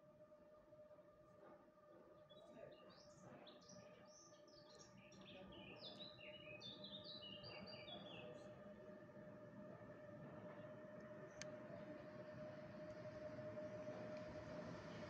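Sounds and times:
songbird chirping and trilling: 2.3s - 8.6s.

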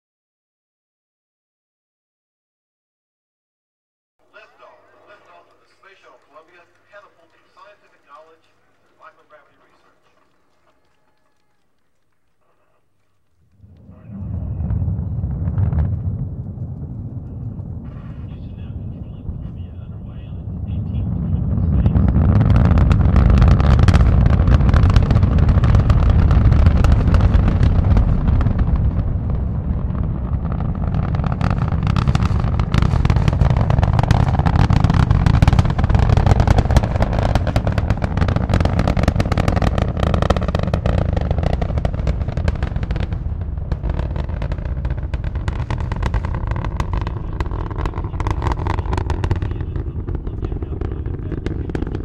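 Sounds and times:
sharp crackling pops: 4.3s - 52.0s
deep rocket engine rumble: 13.5s - 52.0s.

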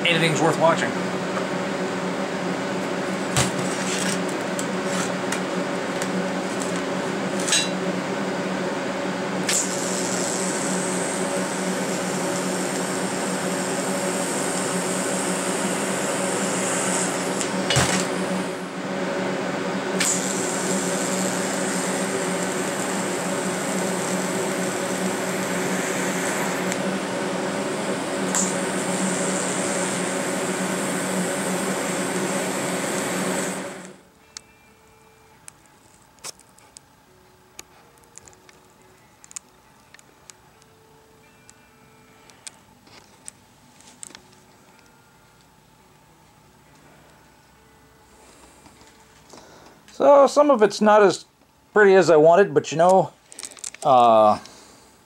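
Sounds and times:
steady hum: 0.0s - 55.0s
welding arc hissing: 9.4s - 18.8s, 20.0s - 34.0s.

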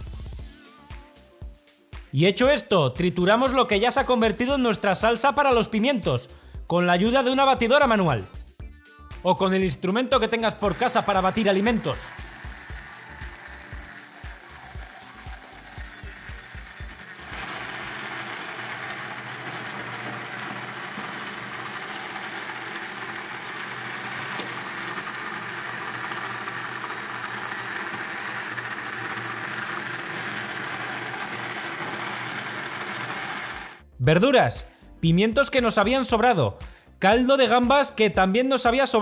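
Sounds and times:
hand blender whirring: 10.2s - 33.8s.

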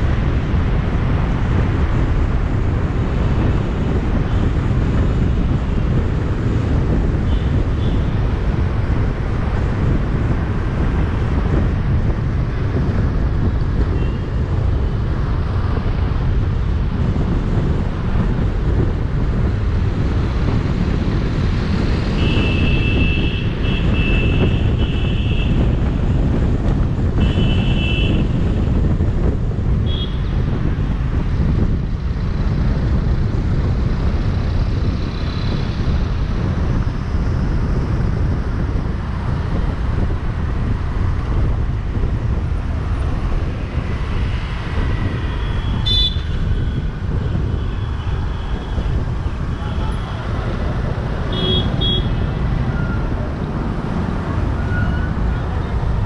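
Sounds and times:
road and wind noise: 0.0s - 56.0s
car horns honking: 45.5s - 46.3s, 51.3s - 53.0s.

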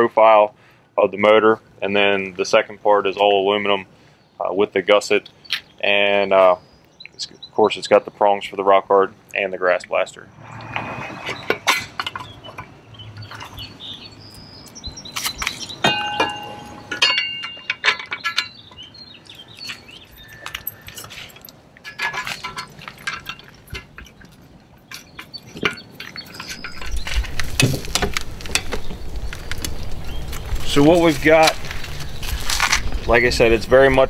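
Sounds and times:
low rumble: 10.2s - 13.2s
metal clinks and knocks: 15.4s - 18.9s, 20.1s - 28.8s.

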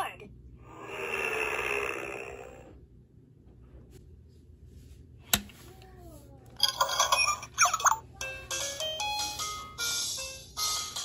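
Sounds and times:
toy electronic beeping and chirping: 6.7s - 8.0s.

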